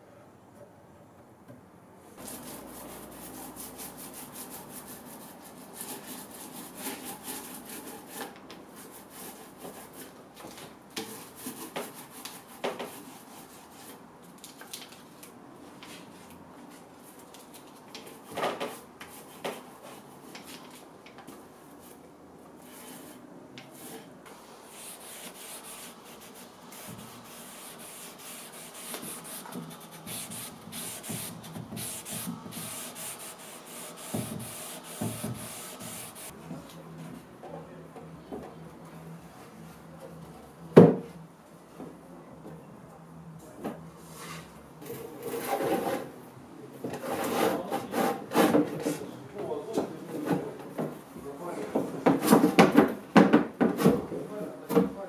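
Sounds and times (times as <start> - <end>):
applicator scrubbing on wood: 24.8 - 36.3.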